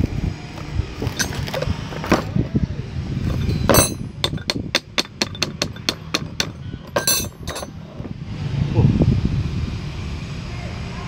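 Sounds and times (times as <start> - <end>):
metallic clatter: 1.0 - 2.3, 3.2 - 8.1
metal clunk: 3.3 - 8.1.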